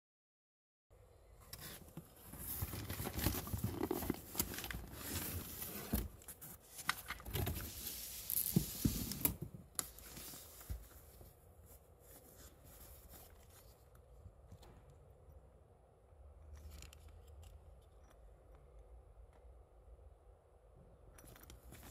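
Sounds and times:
cardboard flaps rustling: 1.6s - 11.3s.

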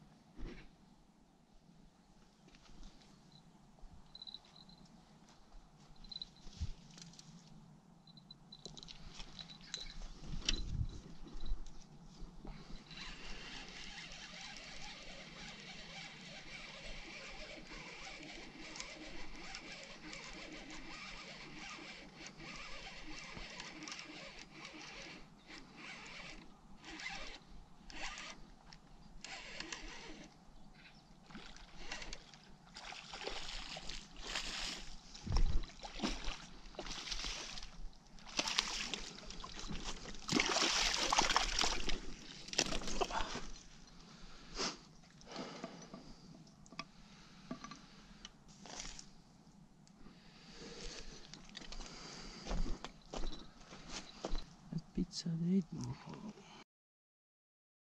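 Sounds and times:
fish splashing in water: 35.6s - 43.4s.

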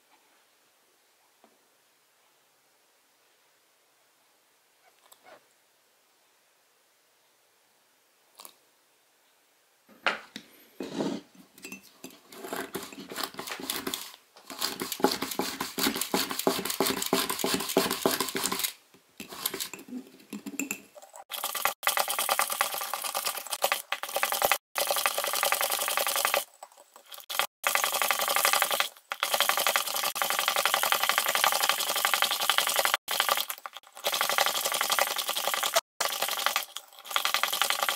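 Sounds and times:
spoon stirring in a mug: 10.8s - 24.5s
whisk rattling in a mug: 11.6s - 37.9s.

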